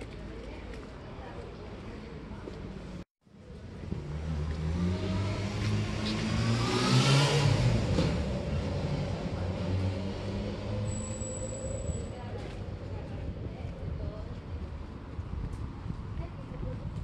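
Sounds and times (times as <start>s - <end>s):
vehicle engine accelerating past: 3.9s - 12.2s.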